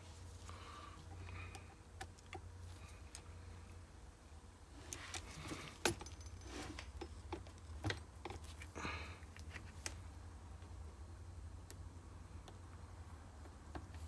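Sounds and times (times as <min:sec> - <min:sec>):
handling noise: 0:04.8 - 0:10.0.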